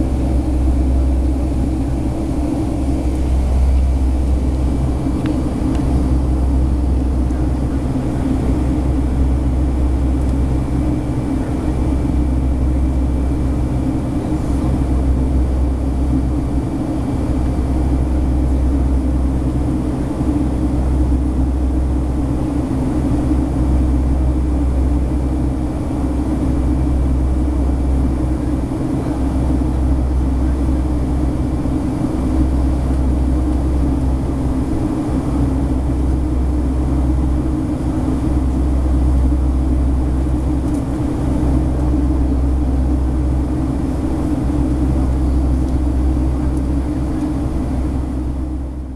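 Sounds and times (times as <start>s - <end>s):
jet engine cabin rumble: 0.0s - 48.9s.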